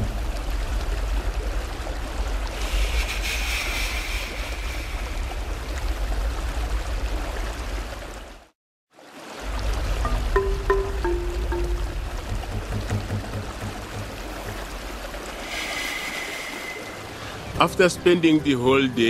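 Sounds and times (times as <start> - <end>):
river water rushing: 9.0 - 17.6.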